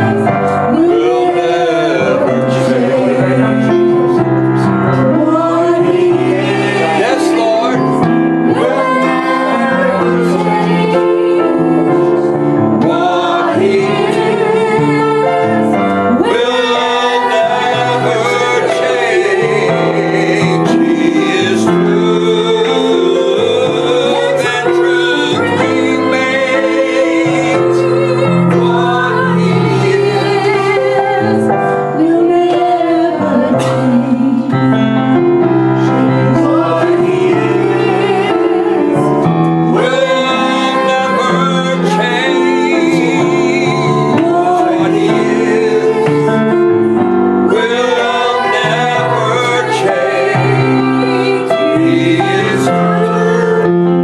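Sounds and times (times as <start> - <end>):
electronic keyboard: 0.0 - 54.0
woman singing gospel: 32.0 - 34.5.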